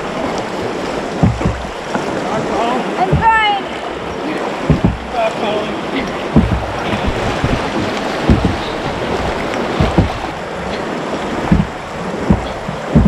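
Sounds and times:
rushing whitewater: 0.0s - 13.0s
short low thumps: 1.0s - 2.2s, 3.0s - 5.2s, 6.0s - 13.0s.

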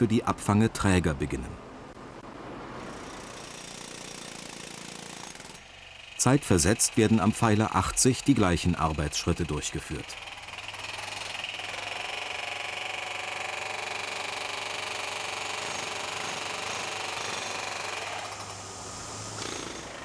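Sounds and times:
construction machinery engine drone: 5.4s - 20.0s.

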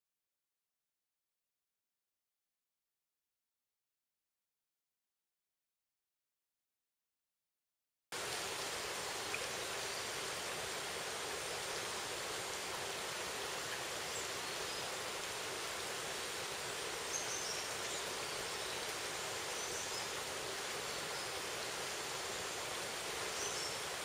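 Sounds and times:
forest stream rushing: 8.1s - 24.0s.

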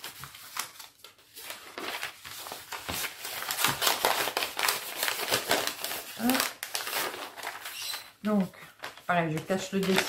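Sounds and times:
packaging crinkling and rustling: 0.0s - 10.0s.

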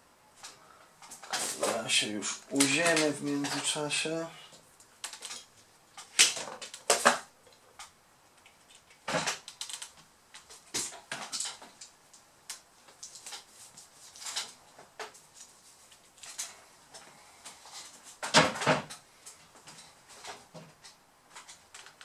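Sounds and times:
tools clicking and clattering: 5.0s - 7.9s.

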